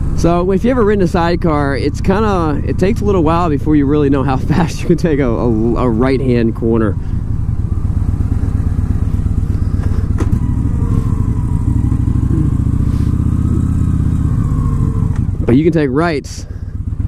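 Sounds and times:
motorcycle engine running: 0:00.0 - 0:17.0.

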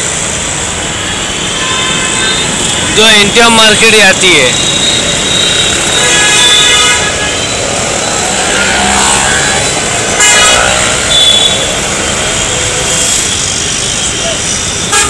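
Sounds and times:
traffic engines running: 0:00.0 - 0:15.0
vehicle horns honking: 0:01.2 - 0:07.8, 0:09.6 - 0:15.0.

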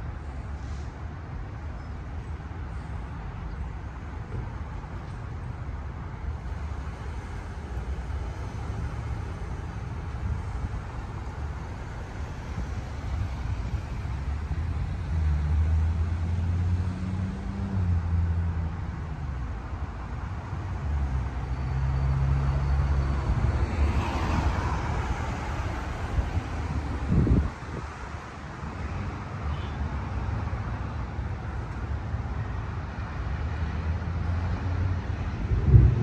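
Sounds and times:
passing traffic hiss: 0:00.0 - 0:01.6
vehicle engines humming: 0:00.0 - 0:36.0.

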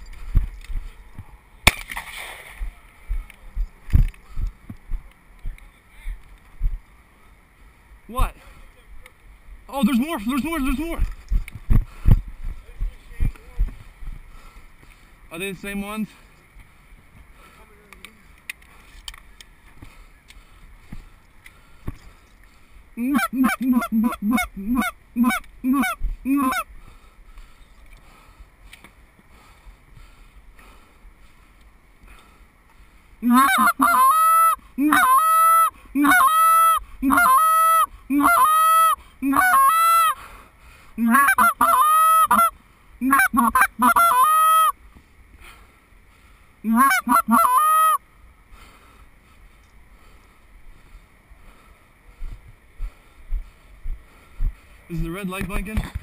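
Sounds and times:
goose honking: 0:23.0 - 0:26.7, 0:33.2 - 0:40.2, 0:41.0 - 0:44.8, 0:46.6 - 0:48.0.

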